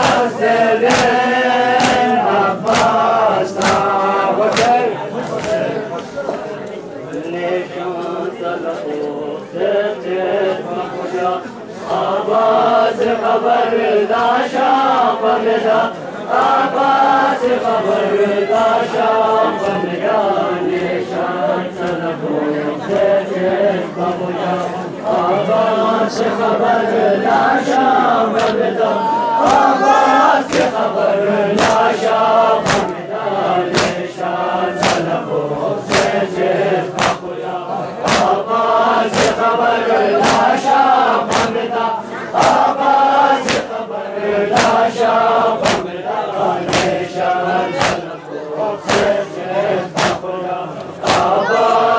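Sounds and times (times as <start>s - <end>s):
unison chest-beating: 0.0s - 5.7s, 29.4s - 30.9s, 31.5s - 33.0s, 33.6s - 37.4s, 38.0s - 41.7s, 42.4s - 43.8s, 44.5s - 48.2s, 48.8s - 50.3s, 51.0s - 51.8s
men chanting together: 0.0s - 51.9s.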